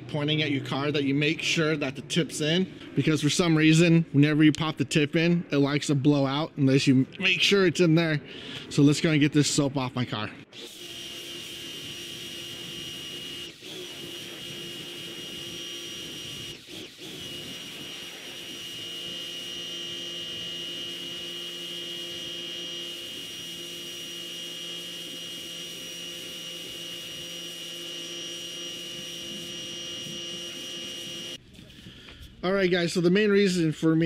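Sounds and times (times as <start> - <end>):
pressure washer whining: 10.5 - 31.4.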